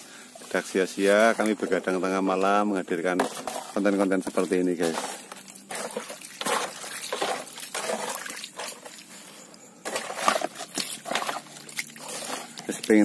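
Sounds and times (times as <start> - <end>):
fish splashing in shallow water: 3.2 - 13.0.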